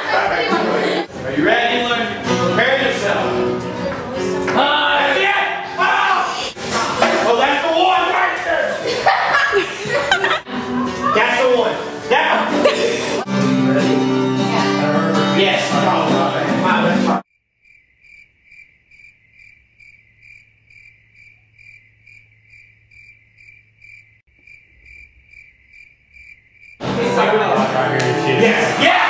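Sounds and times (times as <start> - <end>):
music: 0.0 - 7.3, 10.4 - 17.2, 26.8 - 29.0
cricket chirping: 17.3 - 26.8.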